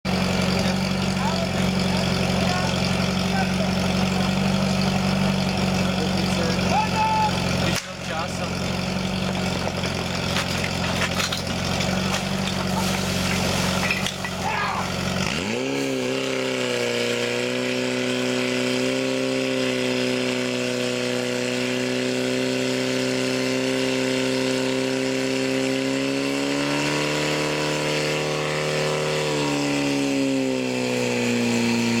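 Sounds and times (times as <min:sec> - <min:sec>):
pump engine revving: 0:00.0 - 0:32.0.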